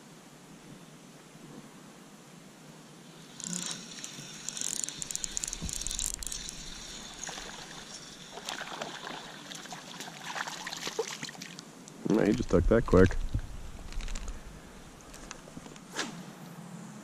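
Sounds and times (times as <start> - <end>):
fish splashing in water: 6.2 - 11.6.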